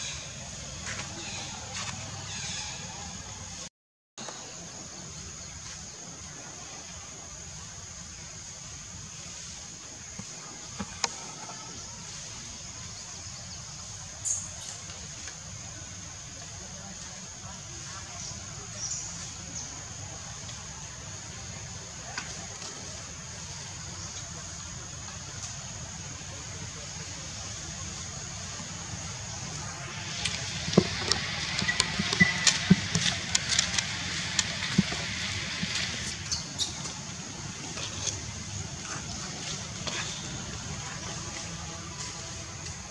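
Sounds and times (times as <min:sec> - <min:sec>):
background hiss: 0:00.0 - 0:42.9
scraping rustle: 0:29.0 - 0:42.7.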